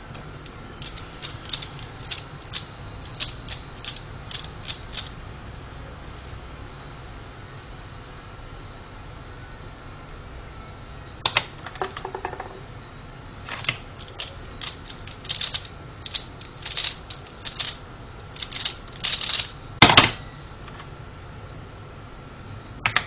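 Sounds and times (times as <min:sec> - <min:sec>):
plastic puzzle clicking turns: 0:00.8 - 0:05.2, 0:13.5 - 0:17.8, 0:18.4 - 0:20.1
puzzle knocking on desk: 0:11.3 - 0:12.6.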